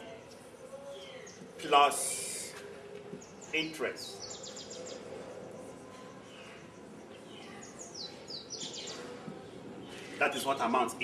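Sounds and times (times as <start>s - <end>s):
steady background noise: 0.0s - 11.0s
small bird chirping: 3.2s - 9.1s.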